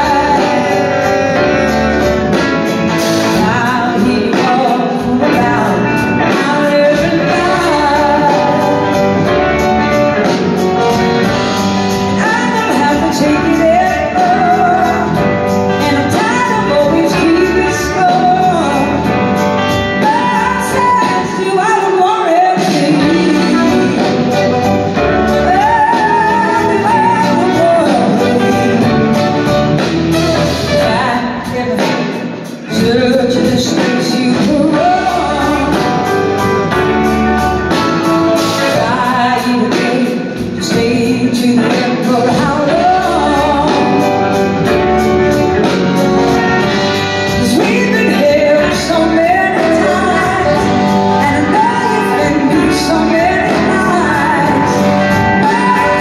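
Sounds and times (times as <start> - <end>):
drums: 0.0 - 56.0
electric guitars: 0.0 - 56.0
keyboards: 0.0 - 56.0
lead singer singing: 0.0 - 56.0.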